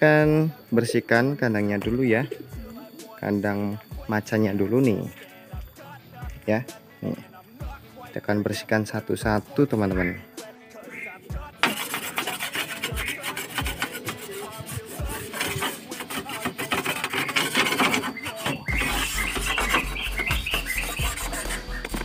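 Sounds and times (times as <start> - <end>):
music with bass beat: 1.8 - 3.2, 3.8 - 4.4, 5.4 - 8.1, 9.2 - 11.6, 12.8 - 16.1, 18.6 - 22.0
blade scraping bamboo floor: 11.6 - 22.0.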